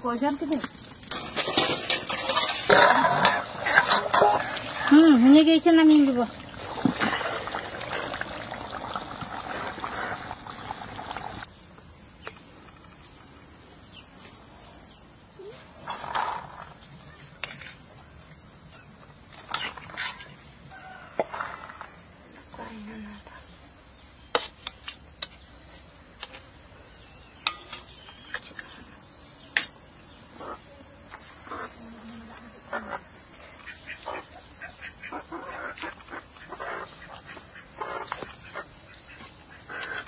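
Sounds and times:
crickets chirring: 0.0s - 40.0s.

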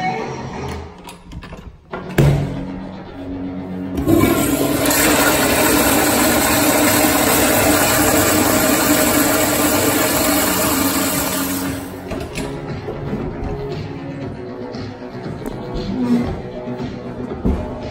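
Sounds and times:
toilet flushing water rush: 4.0s - 12.0s.

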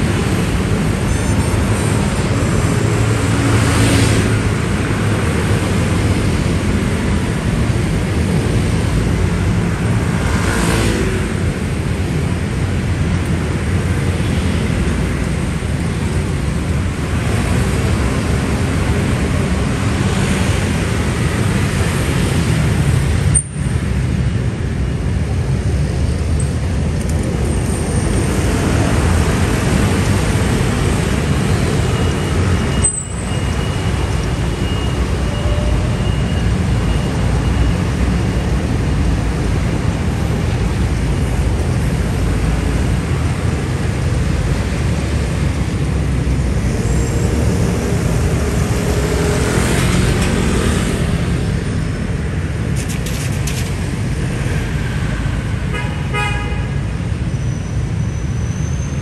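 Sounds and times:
scooters and motorcycles passing: 42.2s - 53.5s.

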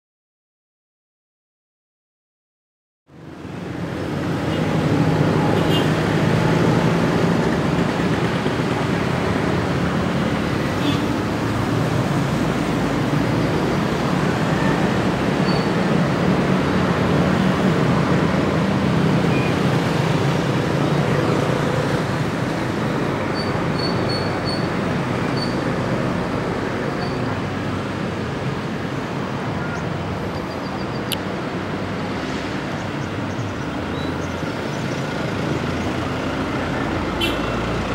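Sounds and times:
diesel locomotive rumble: 4.1s - 31.8s.

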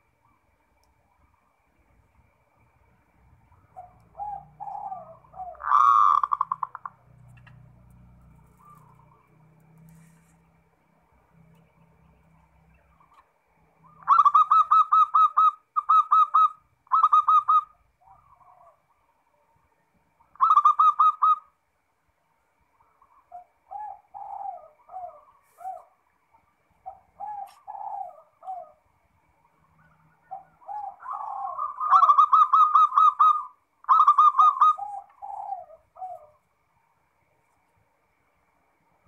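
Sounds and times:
dove cooing: 3.5s - 9.3s, 13.8s - 19.0s, 20.3s - 21.5s, 22.8s - 26.0s, 26.8s - 28.9s, 29.6s - 36.4s.

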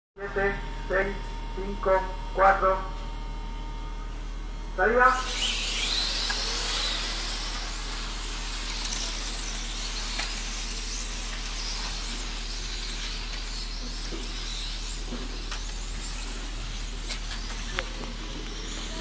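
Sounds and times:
radio-controlled cars whining: 4.8s - 19.0s.

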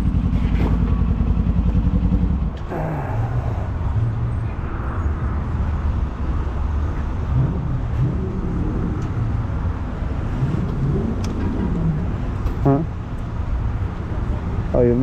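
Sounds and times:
motorcycle engine idling: 0.0s - 4.4s.

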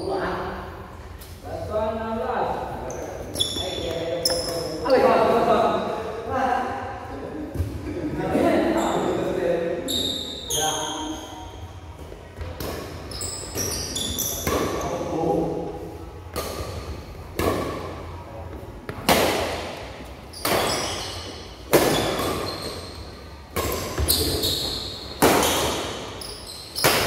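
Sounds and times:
racket hitting shuttlecock: 12.5s - 14.8s, 16.3s - 18.0s, 18.9s - 22.9s, 23.5s - 26.2s, 26.8s - 27.0s.

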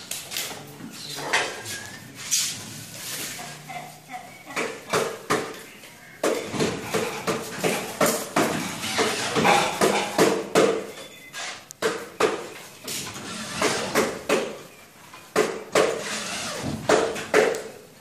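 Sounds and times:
electric drill driving screws: 16.0s - 16.8s.

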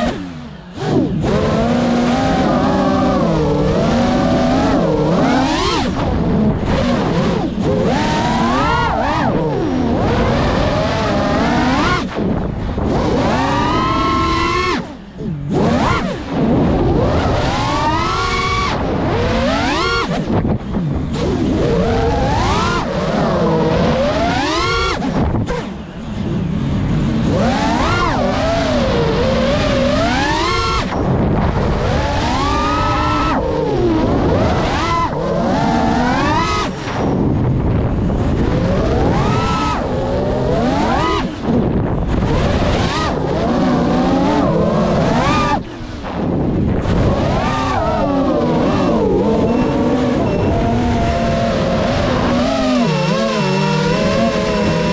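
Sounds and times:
quadcopter propellers whining: 0.0s - 54.9s.

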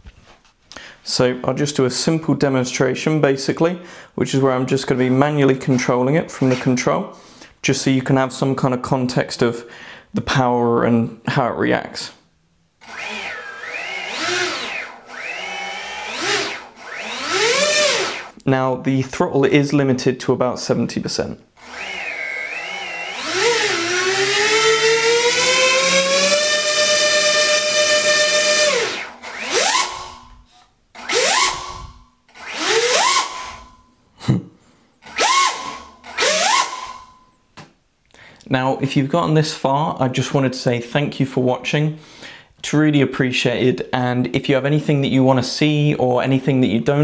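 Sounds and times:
drone motors whining: 12.8s - 18.3s, 21.6s - 30.3s, 31.0s - 33.8s, 35.1s - 37.1s.

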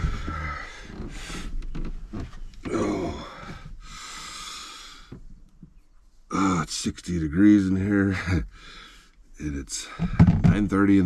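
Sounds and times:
man breathing heavily: 0.0s - 1.6s, 2.7s - 5.3s, 8.2s - 10.4s
man groaning: 2.6s - 3.5s
man sighing: 2.6s - 5.1s.

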